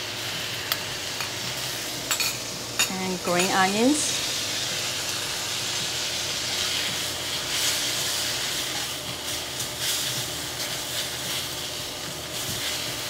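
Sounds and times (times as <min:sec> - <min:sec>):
food sizzling in a wok: 0:00.0 - 0:13.0
spatula scraping a wok: 0:05.4 - 0:11.8.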